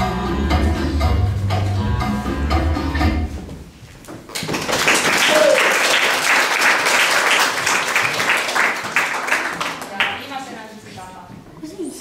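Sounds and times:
latin dance music: 0.0s - 3.6s
audience applause: 4.3s - 10.1s.

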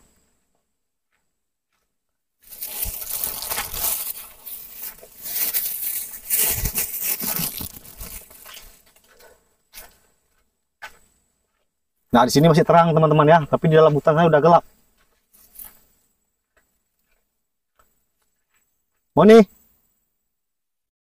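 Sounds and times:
footsteps crunching dry leaves: 2.4s - 10.1s, 14.9s - 16.0s.

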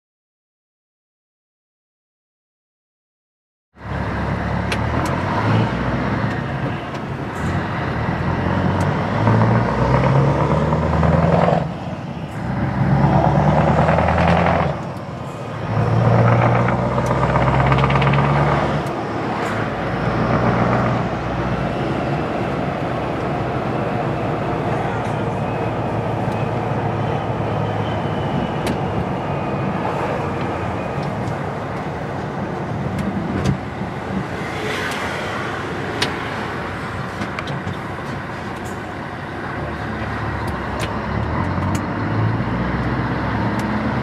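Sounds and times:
diesel truck engine accelerating: 3.8s - 44.0s.

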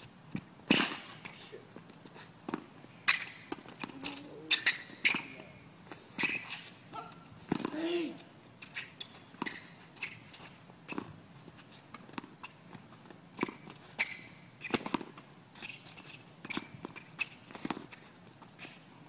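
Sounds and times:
tennis balls bouncing on court: 1.7s - 5.4s, 7.4s - 11.3s, 11.9s - 18.8s.

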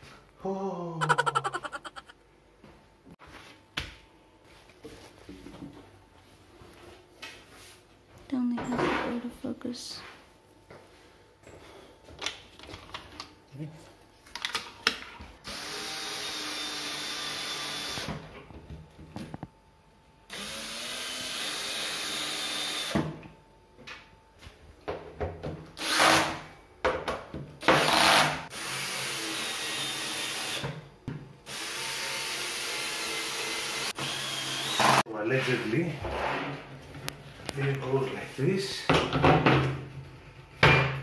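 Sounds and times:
drill driving screws: 15.4s - 18.1s, 20.3s - 23.0s, 25.8s - 26.4s, 27.7s - 30.6s, 31.5s - 35.0s.

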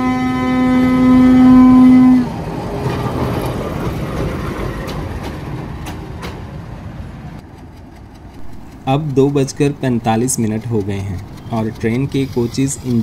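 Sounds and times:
locomotive horn: 0.0s - 2.4s
locomotive running past: 0.0s - 13.0s
wheel clicks over rails: 7.4s - 13.0s.

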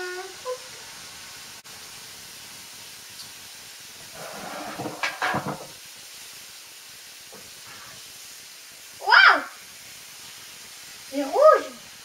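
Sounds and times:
batter hissing on hot plate: 0.0s - 12.0s
jug knocking on table: 4.8s - 5.7s.

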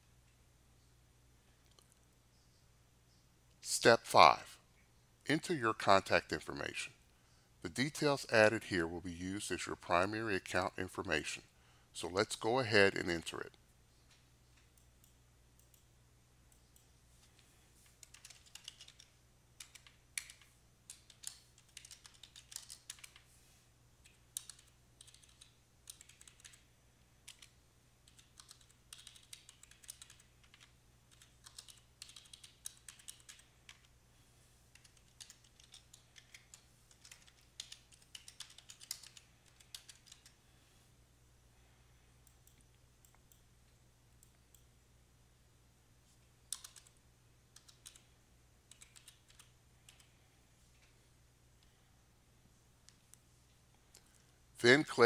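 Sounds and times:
computer keyboard typing: 14.6s - 15.9s, 17.8s - 23.3s, 24.0s - 33.9s, 34.7s - 40.4s, 46.5s - 48.1s, 48.7s - 50.1s.

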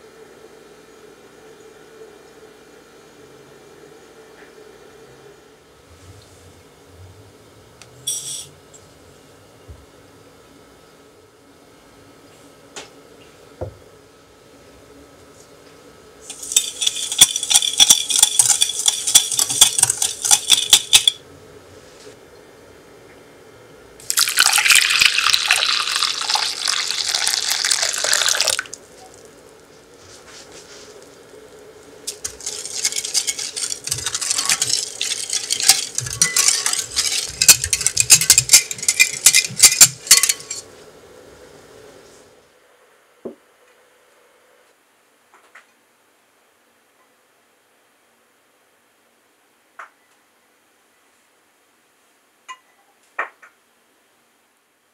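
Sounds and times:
whisk scraping in glass bowl: 16.3s - 21.2s, 32.1s - 40.6s.

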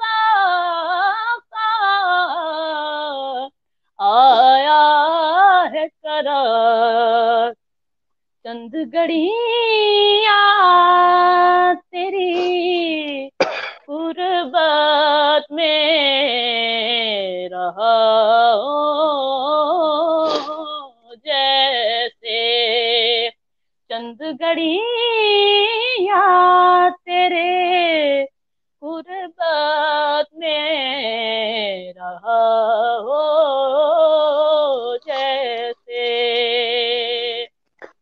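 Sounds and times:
boy singing unaccompanied: 8.5s - 23.3s, 29.0s - 38.0s.

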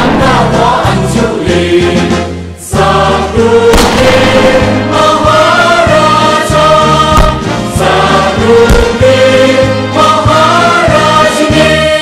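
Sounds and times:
choral music: 0.0s - 12.0s
sharp thumps: 7.2s - 7.4s, 8.7s - 9.0s.

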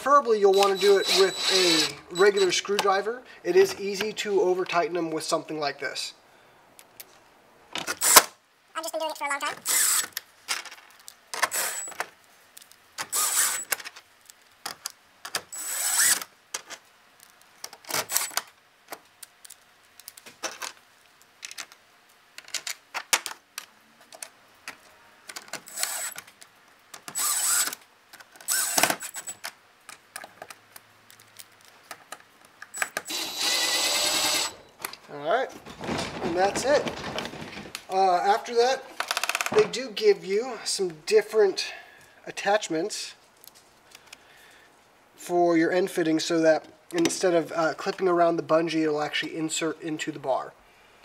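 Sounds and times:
cordless drill driving screws: 0.4s - 2.7s, 9.6s - 10.2s, 11.5s - 11.9s, 13.0s - 13.7s, 15.5s - 16.3s, 18.0s - 18.4s, 25.6s - 26.2s, 27.0s - 27.8s, 28.4s - 29.4s, 32.8s - 34.6s
clatter of small screws: 12.6s - 18.5s, 25.3s - 26.3s, 27.0s - 29.5s.

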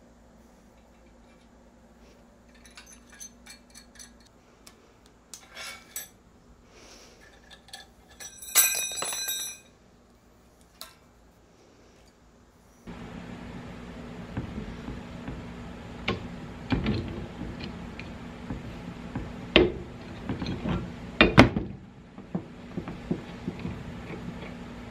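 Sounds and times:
metal pipe fittings clinking: 2.4s - 4.3s, 5.3s - 6.2s, 7.2s - 9.7s.

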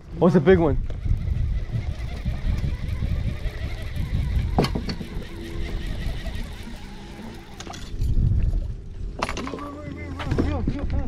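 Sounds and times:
low rumble of wind: 0.0s - 11.0s.

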